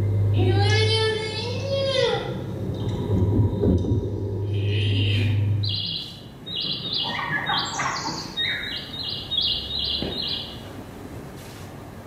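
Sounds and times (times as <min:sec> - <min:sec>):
cartoon chirping notes: 0:04.6 - 0:09.6.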